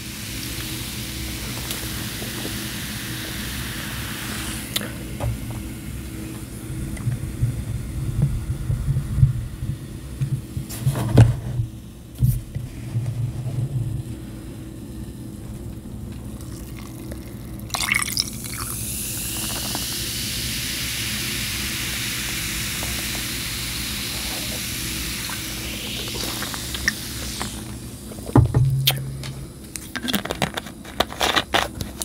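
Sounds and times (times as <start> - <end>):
soda fizzing into a glass: 0.0 - 5.1, 16.3 - 29.2
sharp knocks: 28.3 - 29.4.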